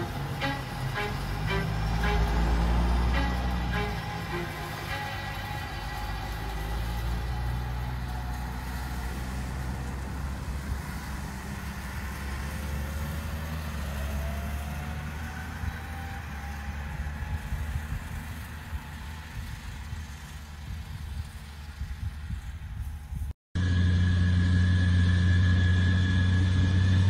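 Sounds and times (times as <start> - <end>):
faint rising whine: 0.0 - 10.4, 23.6 - 27.0
diesel engine running: 0.0 - 27.0.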